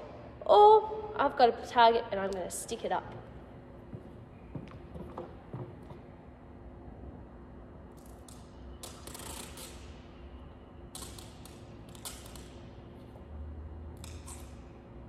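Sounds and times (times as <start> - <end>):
steady low hum: 0.0 - 15.0
adhesive tape ripping off roll: 8.0 - 10.0.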